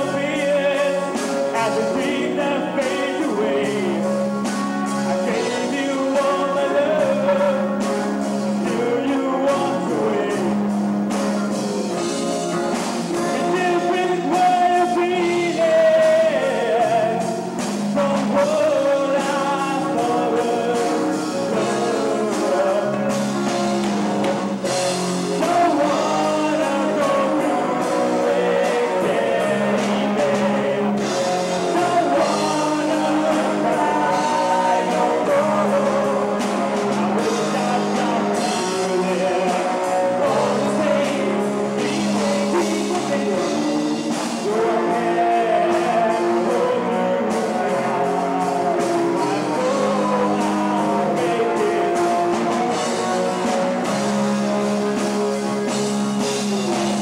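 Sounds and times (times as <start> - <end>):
bass guitar line: 0.0 - 57.0
drum kit: 0.0 - 57.0
electric guitar lead melody: 0.0 - 57.0.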